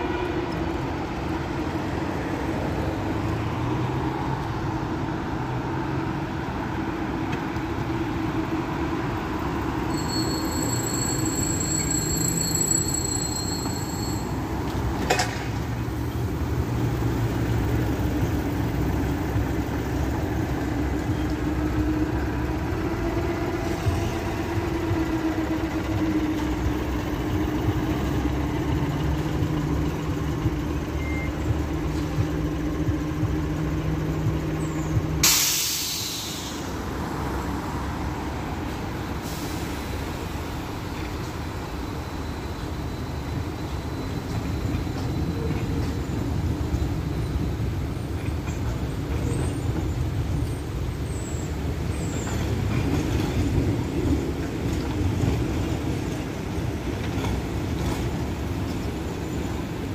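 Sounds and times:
street traffic noise: 0:00.0 - 0:59.9
vehicle humming: 0:00.0 - 0:59.9
compressed air hiss: 0:35.2 - 0:36.7.

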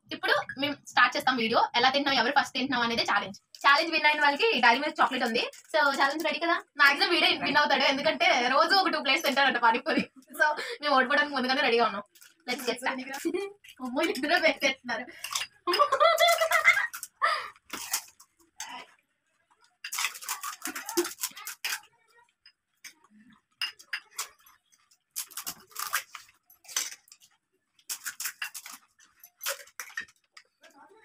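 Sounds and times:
metal spoons clinking on steel: 0:15.2 - 0:17.1, 0:23.6 - 0:24.6, 0:27.9 - 0:30.1
crisp shells cracking: 0:16.3 - 0:18.3, 0:19.8 - 0:21.9, 0:24.1 - 0:30.5.

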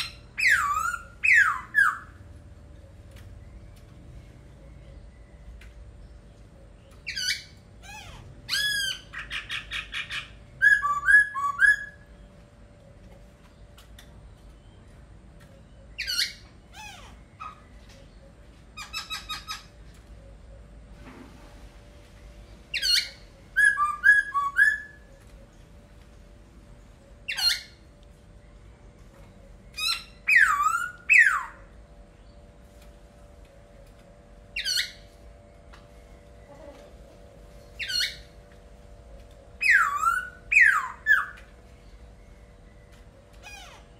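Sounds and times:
bird singing whistled notes: 0:10.6 - 0:12.3, 0:22.7 - 0:25.1, 0:29.7 - 0:31.6, 0:39.6 - 0:41.4.

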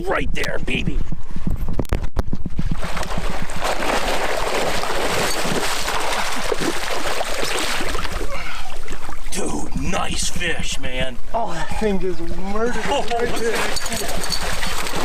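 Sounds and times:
fish thrashing and splashing water: 0:02.6 - 0:09.3, 0:13.4 - 0:15.0.

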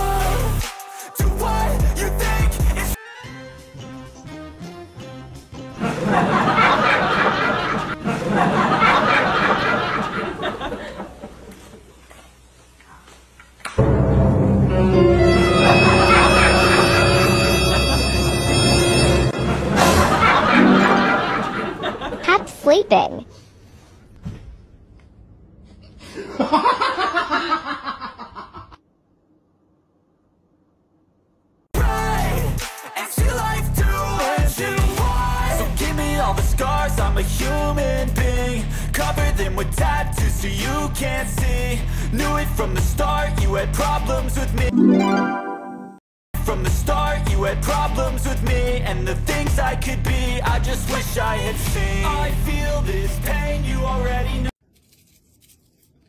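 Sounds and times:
people laughing: 0:05.7 - 0:12.0, 0:15.6 - 0:18.2, 0:19.5 - 0:22.6, 0:26.1 - 0:28.8.

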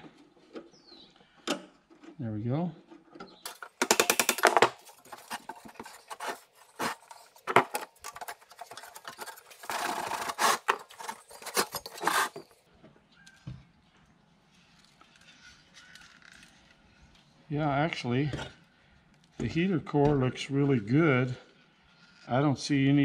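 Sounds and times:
clicks and scrapes handling metal part: 0:02.8 - 0:12.6.

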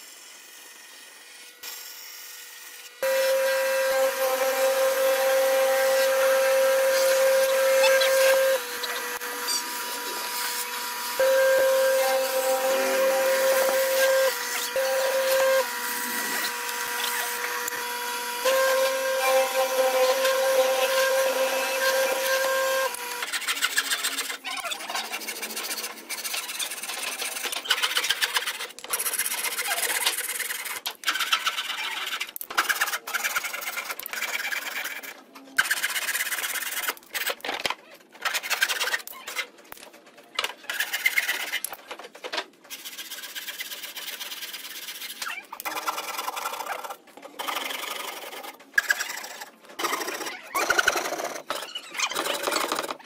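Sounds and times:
hand-saw strokes through timber: 0:03.0 - 0:17.7, 0:18.4 - 0:36.8
machine motor whining: 0:03.0 - 0:23.3
hand-tool work on wood: 0:03.0 - 0:37.4, 0:38.2 - 0:39.5, 0:40.4 - 0:41.9, 0:42.5 - 0:53.0.

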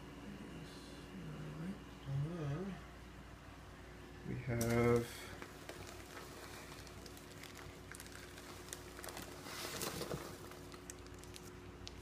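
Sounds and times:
faint steady hum: 0:00.0 - 0:12.0
plastic bag crackling: 0:04.6 - 0:12.0.

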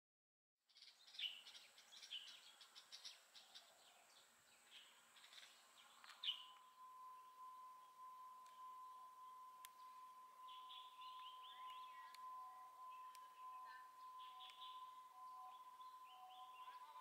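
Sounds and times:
small birds chirping: 0:00.6 - 0:17.0
steady tone: 0:05.0 - 0:17.0.

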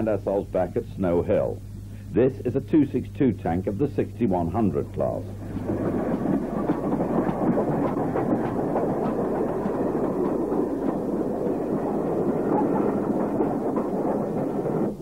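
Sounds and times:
steam train running on rails: 0:00.0 - 0:15.0
wheels clattering over rail joints: 0:03.5 - 0:15.0.

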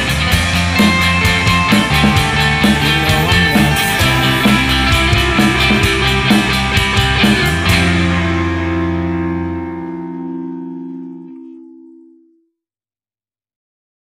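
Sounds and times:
rock song with drums and guitar: 0:00.0 - 0:10.9
held guitar chord ringing: 0:00.0 - 0:12.4.

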